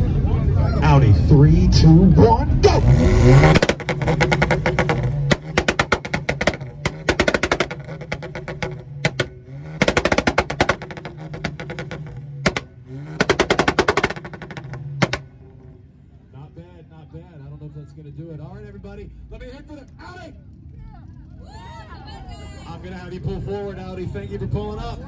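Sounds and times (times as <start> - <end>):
car engine idling: 0.0 - 25.0
engine popping and banging: 2.6 - 15.9.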